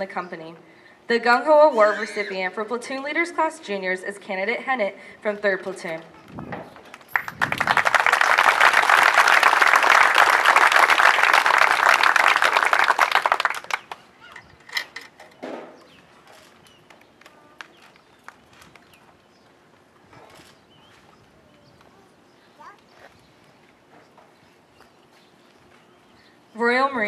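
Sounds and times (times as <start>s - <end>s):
audience applauding: 7.0s - 14.0s.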